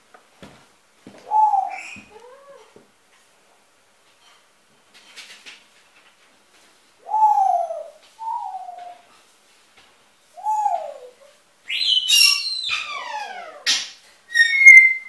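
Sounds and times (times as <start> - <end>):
pet birds calling: 1.3 - 2.4, 10.4 - 15.0.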